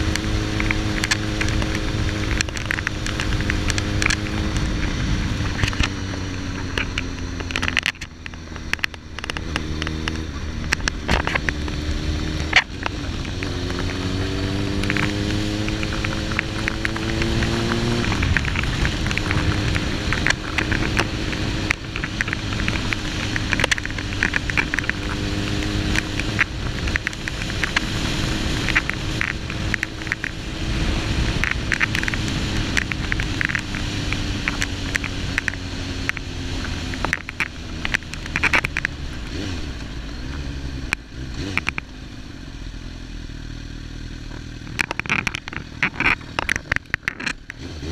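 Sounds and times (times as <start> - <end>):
wind rush: 0.0 - 6.8, 10.4 - 34.6
crackling clicks: 0.0 - 42.0, 44.0 - 47.9
motorcycle engine revving: 0.0 - 47.9.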